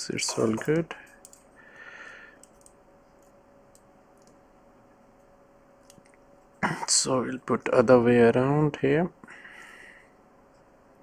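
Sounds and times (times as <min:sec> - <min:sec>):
steady hum: 0:00.0 - 0:11.0.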